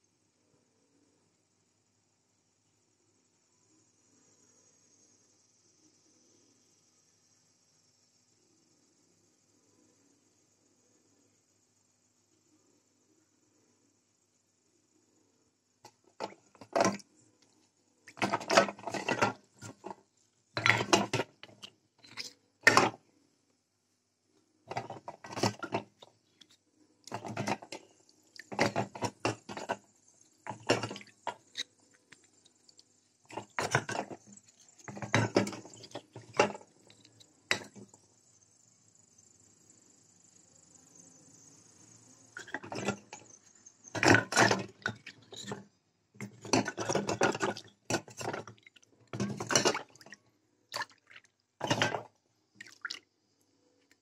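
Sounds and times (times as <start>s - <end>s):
water sloshing and dripping: 15.8s - 20.0s, 20.6s - 23.0s, 24.7s - 38.0s, 42.4s - 45.6s, 46.2s - 53.1s.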